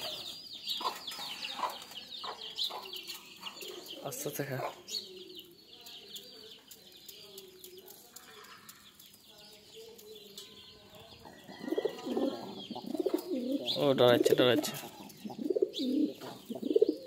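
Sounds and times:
pigeons cooing: 0:11.3 - 0:17.0.

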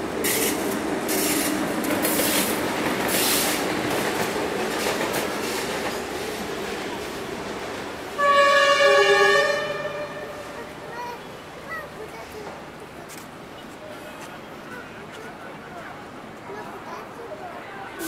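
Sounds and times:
train horn blast: 0:08.2 - 0:10.6.

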